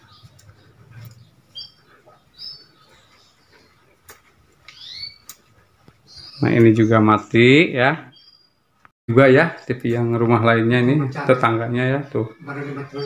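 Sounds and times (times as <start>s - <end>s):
faint bird chirps: 4.7s - 5.4s, 8.1s - 8.6s.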